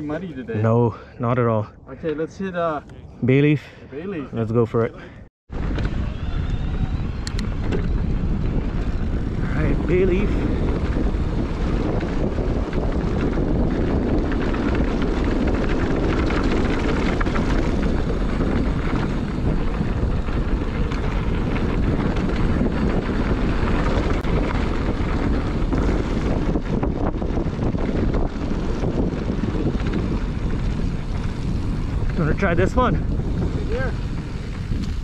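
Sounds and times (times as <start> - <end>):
wind rushing on microphone: 0.0 - 35.0
tyres rolling on dirt: 7.4 - 35.0
bike knocks and rattles: 10.3 - 32.4.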